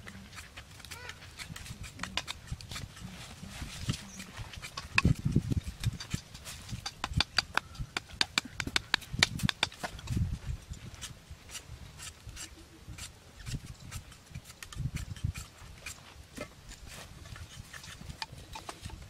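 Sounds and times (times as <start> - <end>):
machete cutting bamboo stick: 0.4 - 3.0, 3.7 - 10.2.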